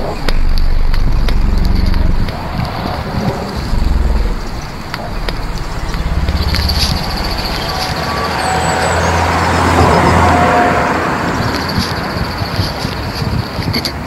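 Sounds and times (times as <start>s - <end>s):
vehicle rumble and rushing: 0.0s - 14.0s
faint whistling tones: 6.2s - 13.9s.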